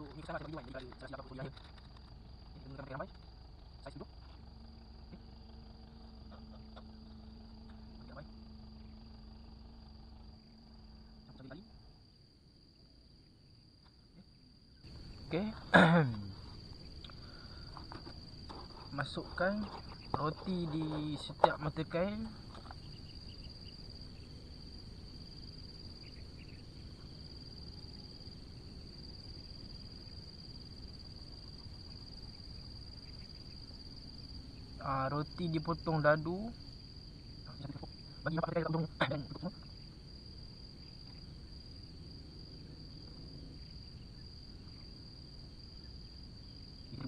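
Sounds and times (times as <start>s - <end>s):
faint low rumble: 0.0s - 33.0s
insects trilling: 0.0s - 47.0s.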